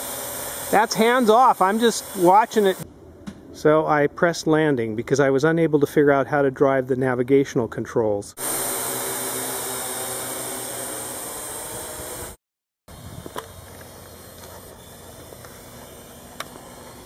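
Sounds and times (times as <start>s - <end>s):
drone rotors whirring: 8.4s - 17.0s
distant drone hum: 13.2s - 17.0s.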